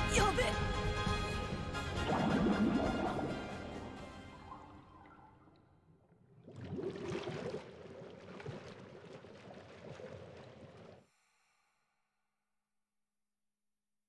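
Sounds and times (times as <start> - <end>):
music: 0.0 - 5.0
underwater bubbles gurgling: 1.9 - 11.0.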